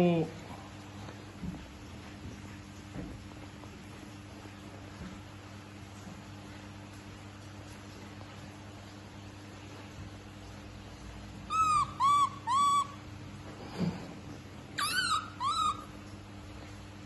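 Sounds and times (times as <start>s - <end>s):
baby monkey crying: 11.5s - 13.0s, 14.8s - 15.9s.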